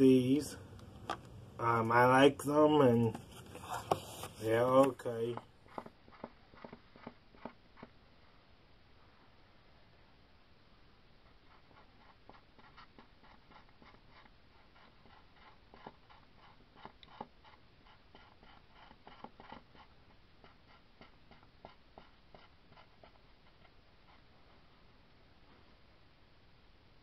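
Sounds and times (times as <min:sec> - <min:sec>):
pastel scratching on fabric: 0:03.2 - 0:08.0, 0:11.4 - 0:24.4.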